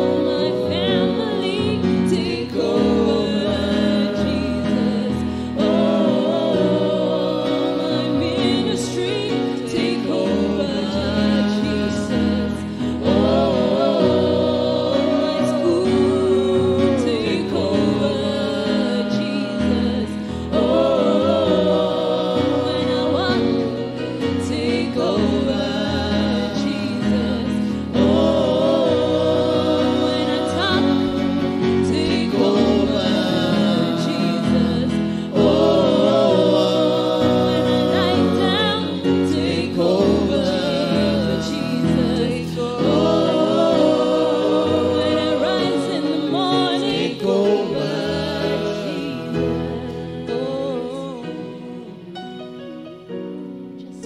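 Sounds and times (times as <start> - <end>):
man and woman singing: 0.0 - 54.0.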